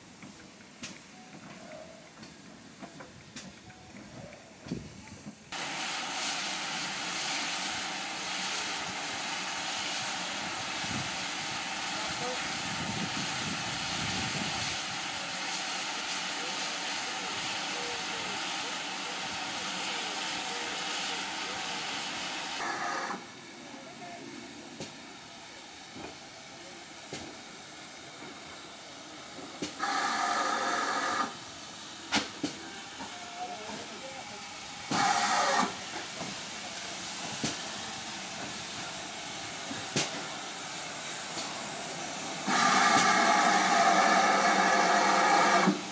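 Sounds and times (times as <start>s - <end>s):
steam hissing: 4.7s - 45.9s.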